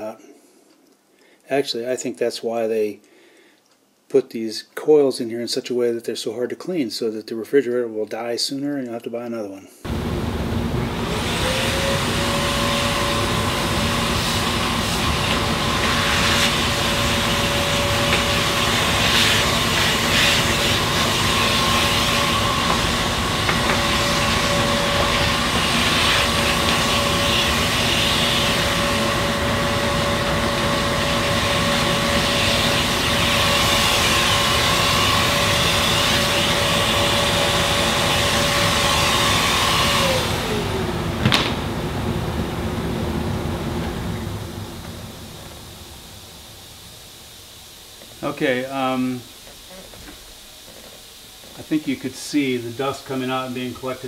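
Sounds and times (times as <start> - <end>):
electric blower motor whine: 9.9 - 51.9.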